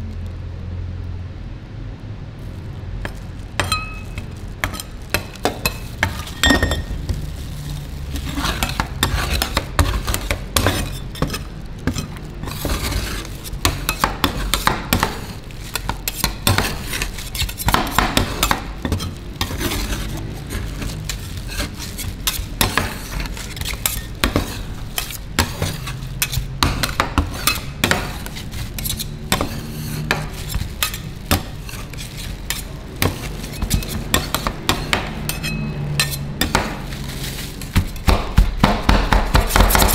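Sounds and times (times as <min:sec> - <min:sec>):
metal spatulas clacking and scraping: 0:08.1 - 0:38.1.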